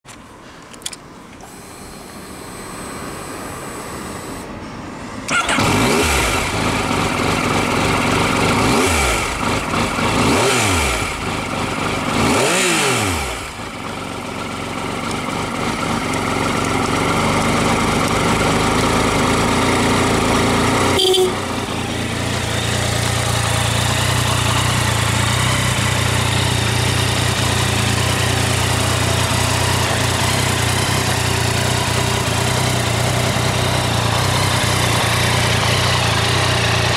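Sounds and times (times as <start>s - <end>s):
motorcycle engine revving and idling: 5.3s - 36.9s.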